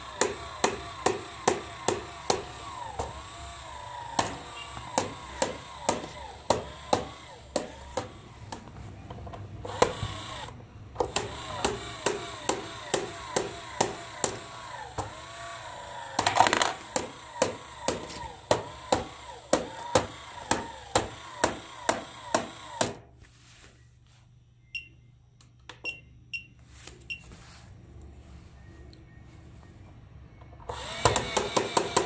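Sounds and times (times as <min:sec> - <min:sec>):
toy motor clicking: 0:30.7 - 0:32.0.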